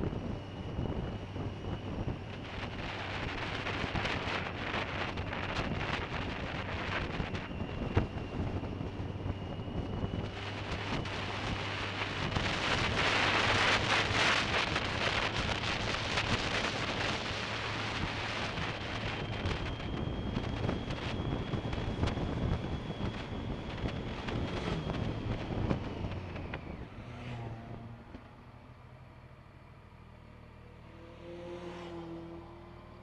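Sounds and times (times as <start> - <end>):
wind buffeting camera: 0.0 - 28.3
motorcycle engine running: 0.0 - 28.6.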